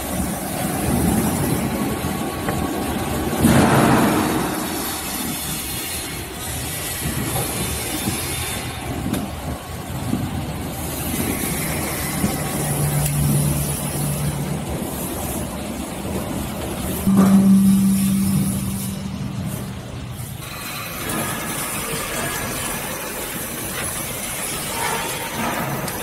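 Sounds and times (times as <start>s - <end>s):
machinery running: 0.0s - 26.0s
low motor hum: 8.6s - 24.6s
loud hum: 16.9s - 22.5s.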